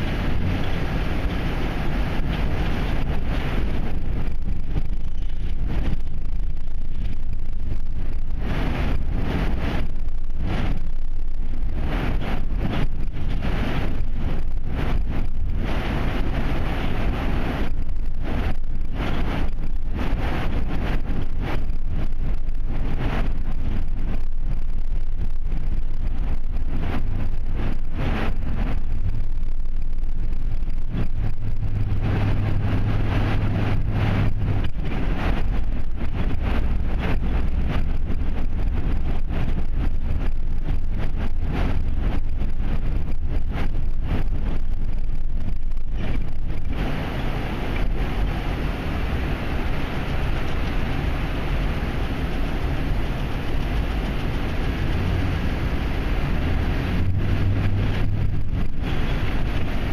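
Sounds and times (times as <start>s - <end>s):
car road and engine rumble: 0.0s - 59.9s
low hum: 0.0s - 59.9s.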